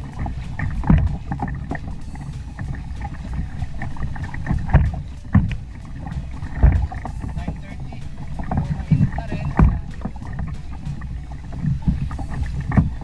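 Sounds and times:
low thumps: 0:00.0 - 0:13.0
water lapping against kayak: 0:00.0 - 0:13.0
wind buffeting microphone: 0:00.0 - 0:13.0.

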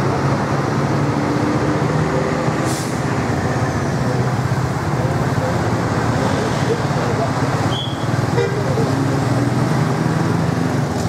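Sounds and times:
bus diesel engine running: 0:00.0 - 0:11.0
air brake hiss: 0:02.7 - 0:03.0.

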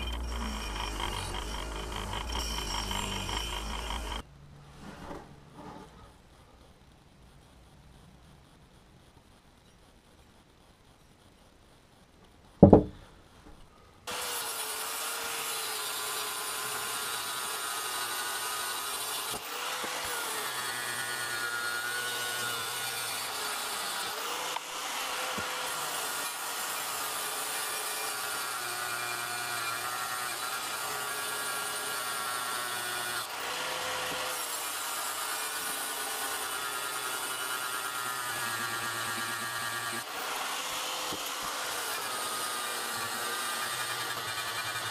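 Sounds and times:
angle grinder grinding steel: 0:00.0 - 0:04.3, 0:14.1 - 0:44.9
sharp knock: 0:12.6 - 0:13.0.

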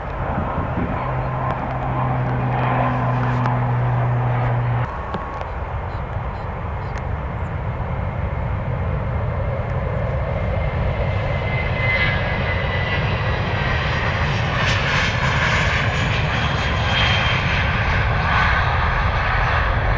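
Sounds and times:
high whine: 0:00.0 - 0:07.6
jet engines roaring at takeoff: 0:00.0 - 0:19.9.

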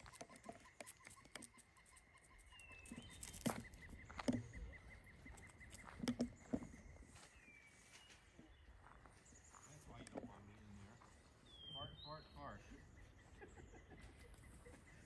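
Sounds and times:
small animal trilling: 0:00.0 - 0:06.6.

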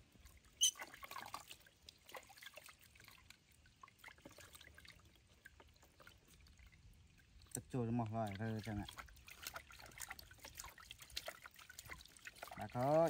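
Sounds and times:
water trickling and splashing: 0:00.0 - 0:13.0.

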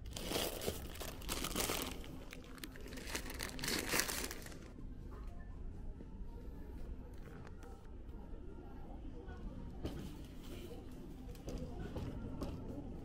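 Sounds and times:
plastic wrapper crinkling: 0:00.0 - 0:04.7.

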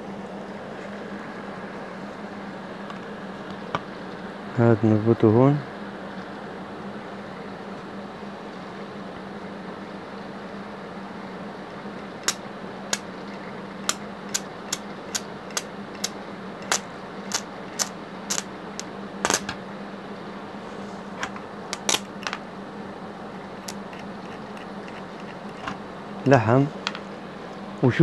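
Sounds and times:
welding machine hum: 0:11.1 - 0:19.6, 0:21.0 - 0:27.2
welding arc crackling pops: 0:12.0 - 0:13.1, 0:13.8 - 0:19.6, 0:21.2 - 0:22.4, 0:23.6 - 0:25.7.

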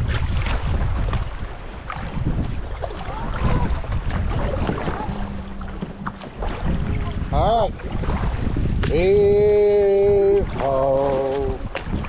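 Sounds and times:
water splashes: 0:00.0 - 0:12.0
wind rumbling on microphone: 0:00.0 - 0:12.0
low steady hum: 0:03.4 - 0:08.3.

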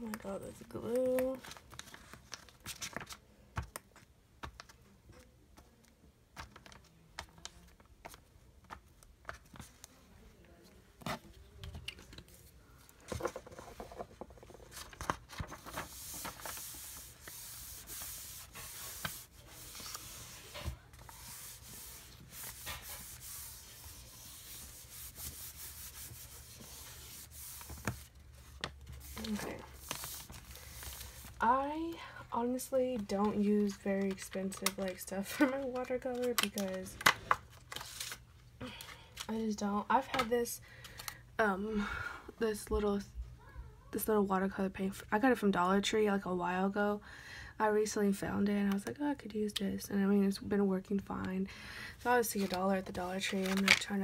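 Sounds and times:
paper pages turning: 0:00.8 - 0:05.3, 0:11.1 - 0:31.4, 0:32.9 - 0:38.2, 0:52.2 - 0:54.0
palm rubbing paper: 0:13.2 - 0:31.4.

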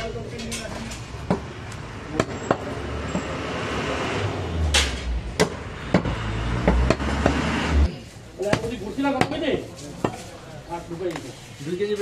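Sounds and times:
cleaver chopping meat on wood: 0:05.4 - 0:07.5, 0:08.4 - 0:09.4.

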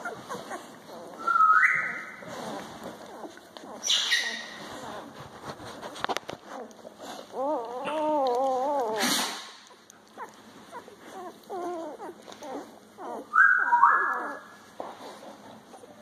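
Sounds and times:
high-pitched puppy squeals: 0:00.0 - 0:05.0, 0:07.3 - 0:14.7
puppies whimpering and squeaking: 0:00.0 - 0:16.0.

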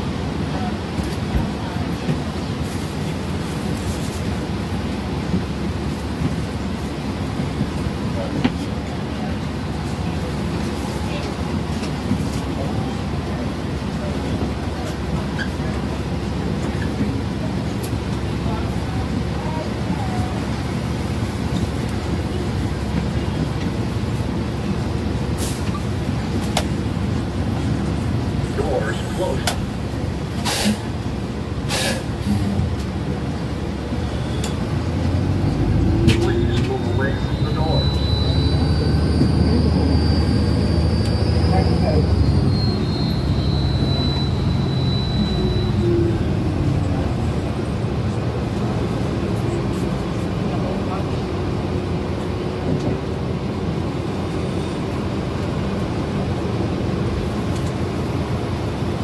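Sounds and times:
bus engine low rumble: 0:00.0 - 0:59.0
brief air hiss: 0:30.4 - 0:30.9, 0:31.7 - 0:32.4.

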